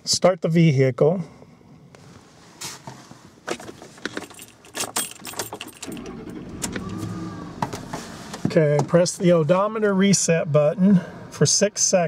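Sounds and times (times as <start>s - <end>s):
keys jangling in ignition: 4.0s - 7.1s
pickup engine starting and idling: 5.2s - 9.8s.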